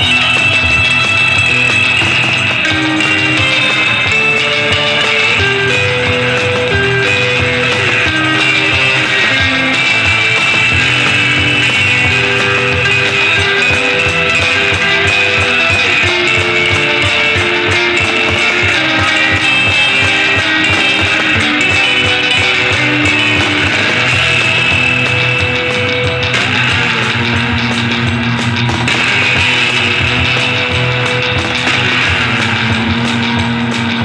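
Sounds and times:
electric guitar melody: 0:00.0 - 0:34.0
steady beat: 0:00.0 - 0:34.0.

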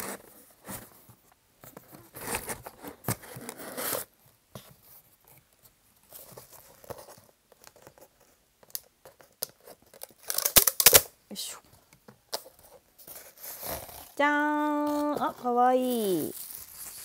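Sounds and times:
packaging tearing and crinkling: 0:09.8 - 0:11.1, 0:13.1 - 0:14.2, 0:14.8 - 0:17.0.

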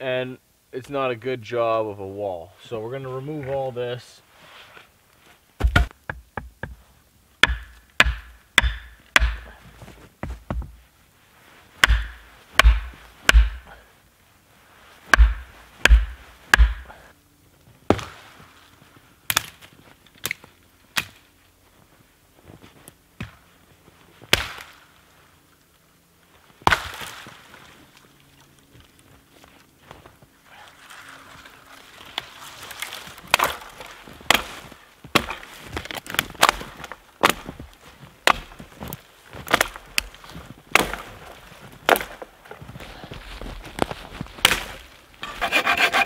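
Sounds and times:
axe chopping wood: 0:05.6 - 0:06.8, 0:07.4 - 0:09.6, 0:11.8 - 0:13.7, 0:15.1 - 0:17.0, 0:17.9 - 0:18.2, 0:24.3 - 0:24.7, 0:26.6 - 0:27.1, 0:33.3 - 0:37.6, 0:38.2 - 0:38.6, 0:39.5 - 0:41.1, 0:41.9 - 0:42.2, 0:44.4 - 0:46.0.

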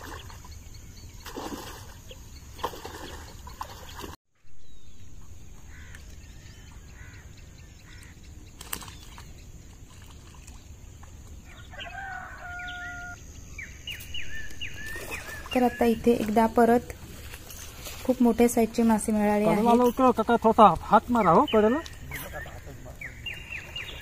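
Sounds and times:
water sloshing: 0:00.0 - 0:04.2, 0:08.0 - 0:11.8, 0:14.5 - 0:24.0
drawn-out steady call: 0:05.2 - 0:24.0.

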